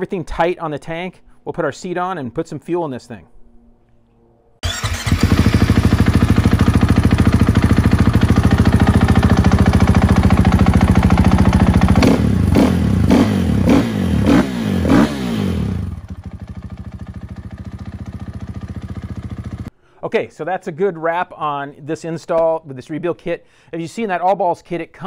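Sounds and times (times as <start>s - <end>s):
motorcycle engine revving: 4.6s - 19.7s.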